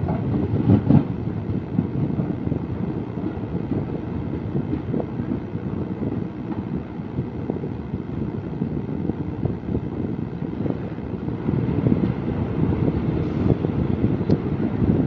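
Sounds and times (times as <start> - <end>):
moving train rumble: 0.0 - 15.0
wind buffeting microphone: 0.0 - 15.0.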